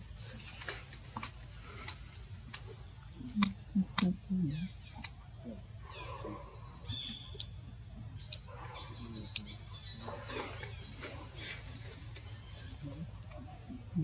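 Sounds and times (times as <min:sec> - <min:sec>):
sharp clicks: 0:00.6 - 0:02.7, 0:08.2 - 0:08.5.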